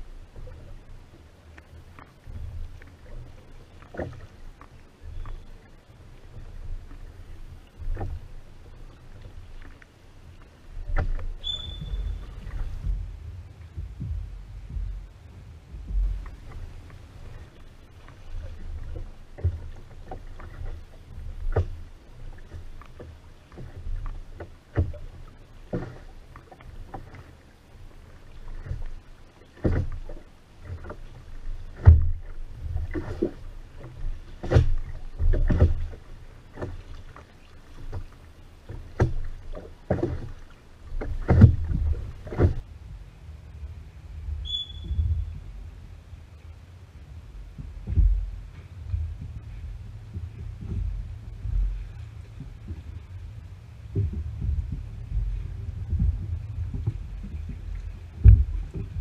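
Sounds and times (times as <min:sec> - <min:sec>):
oars splashing water: 0:00.0 - 0:59.0
low rumble: 0:10.4 - 0:25.6, 0:40.7 - 0:59.0
oars knocking in wooden oarlocks: 0:10.8 - 0:43.0, 0:47.5 - 0:59.0.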